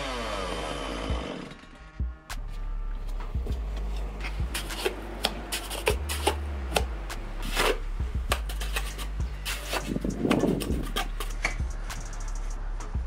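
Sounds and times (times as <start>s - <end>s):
soft background music: 0.9s - 13.0s
trowel scraping wet mortar: 3.8s - 11.6s.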